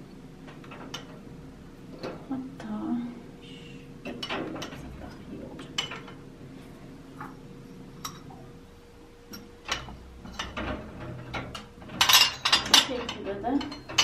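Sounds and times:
cups clinking in wire basket: 11.6s - 14.0s.

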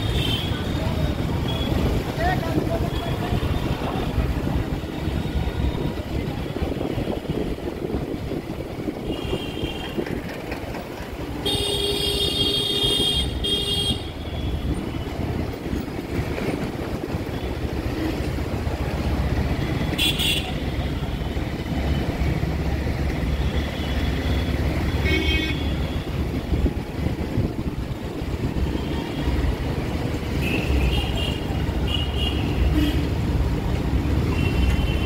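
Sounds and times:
motorbike engine in traffic: 0.0s - 35.0s.

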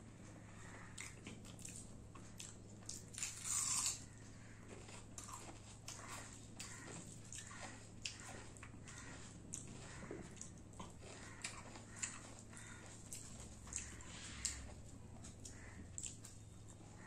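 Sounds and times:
wet chewing and mouth clicks: 1.0s - 4.1s, 4.7s - 16.8s
fingers squishing food on a plate: 4.6s - 17.0s.

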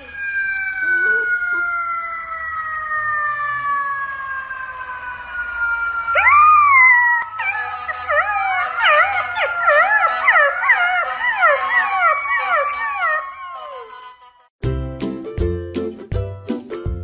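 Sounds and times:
puppy howling: 0.0s - 4.0s, 6.0s - 14.2s
steady tone falling in pitch: 0.0s - 14.2s.

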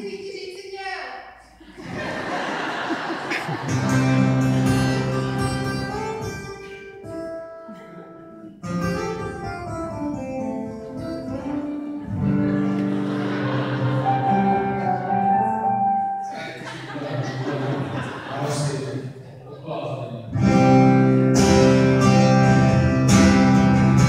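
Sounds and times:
acoustic guitar chords: 2.8s - 18.2s, 20.3s - 24.0s
keyboard chords: 3.3s - 18.1s, 20.4s - 24.0s.

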